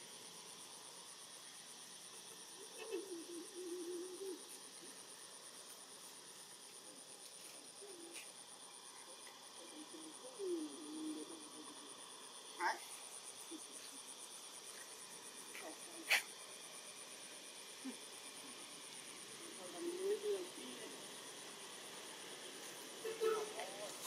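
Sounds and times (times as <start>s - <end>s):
pulsing insect trill: 0.0s - 24.0s
soft hiss: 0.0s - 24.0s
wavering voice-like call: 2.6s - 4.6s.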